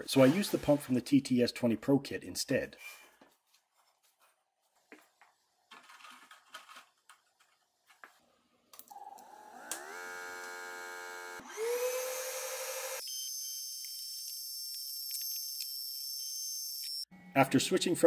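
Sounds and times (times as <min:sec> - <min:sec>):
air pump motor whine: 0:08.9 - 0:13.0.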